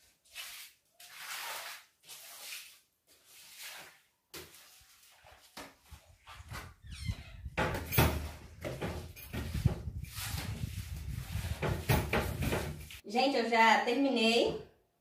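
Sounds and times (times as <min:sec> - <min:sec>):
broom sweeping wet floor: 0:00.0 - 0:06.6, 0:09.3 - 0:13.0
soft scuffs: 0:00.3 - 0:06.8.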